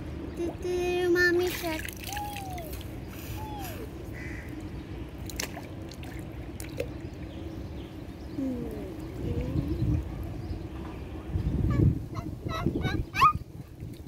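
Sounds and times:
water trickling and lapping: 1.3 - 8.3, 12.4 - 14.0.

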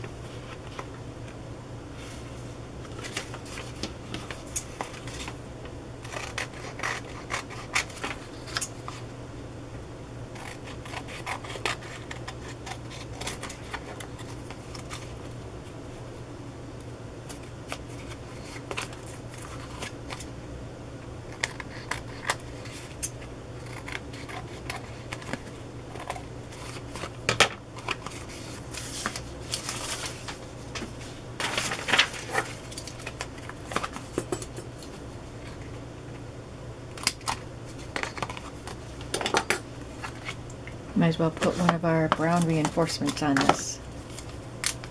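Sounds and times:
steady low hum: 0.0 - 44.9
paper rustling: 2.0 - 5.4, 27.8 - 34.1.

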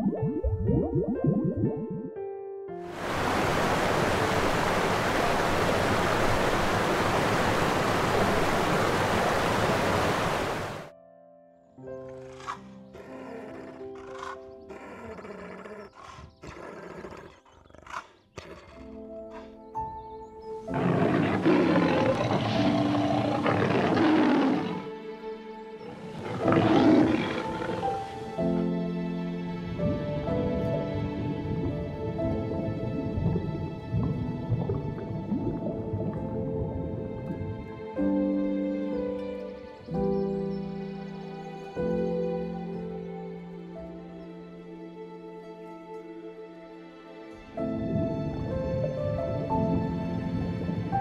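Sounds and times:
soft piano music: 0.0 - 5.6, 10.9 - 15.0, 18.8 - 51.0
running water rushing: 2.9 - 10.9, 20.7 - 25.1, 25.8 - 38.2
lion roaring: 20.7 - 24.9, 25.8 - 28.2.

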